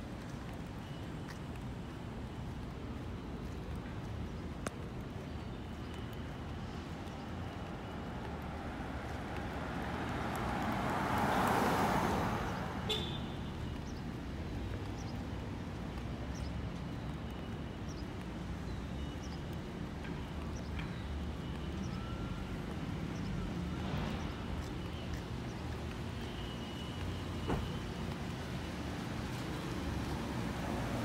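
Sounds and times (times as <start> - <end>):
car passing: 8.6 - 13.2.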